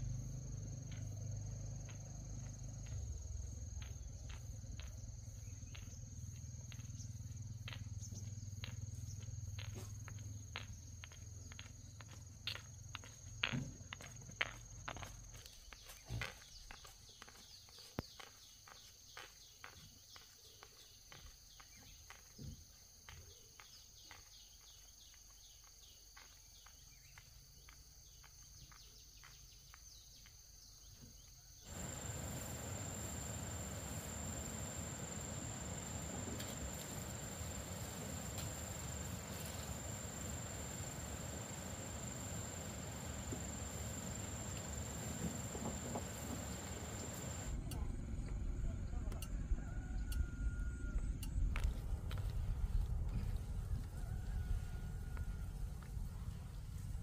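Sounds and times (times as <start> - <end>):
insects chirping: 0.0 - 52.9
high insect trill: 31.5 - 47.6
steady hiss: 31.7 - 47.5.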